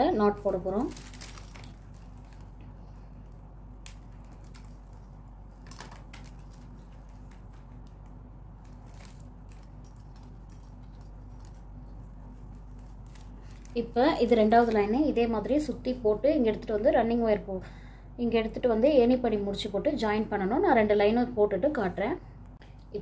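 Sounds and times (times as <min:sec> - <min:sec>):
plastic wire rustling and scraping: 0:00.0 - 0:15.0
steady low hum: 0:00.0 - 0:23.0.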